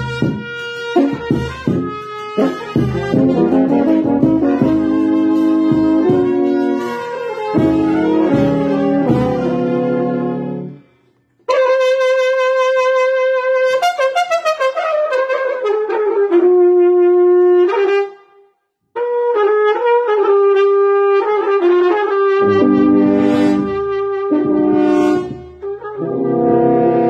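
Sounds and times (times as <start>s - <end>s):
brass horn playing slow melody: 0.0s - 18.4s, 19.0s - 27.0s
lower-pitched brass part: 0.0s - 27.0s.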